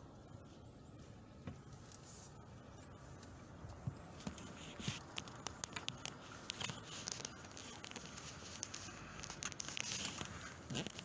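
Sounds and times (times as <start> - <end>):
light clicks and rustles: 1.5 - 11.0.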